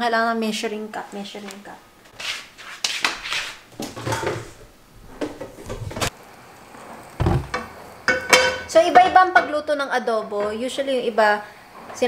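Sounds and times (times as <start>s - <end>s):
kitchenware knocking and clattering: 3.8s - 6.1s, 7.2s - 9.7s
heavy dull thump: 7.2s - 7.6s.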